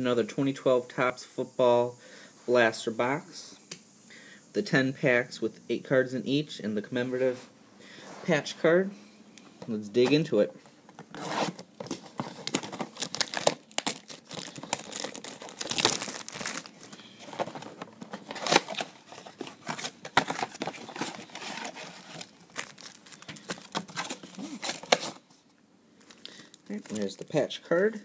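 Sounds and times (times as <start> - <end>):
foil packs rustling: 10.9 - 25.3, 26.0 - 28.0
plastic wrap crinkling and tearing: 11.1 - 25.2, 26.0 - 27.5.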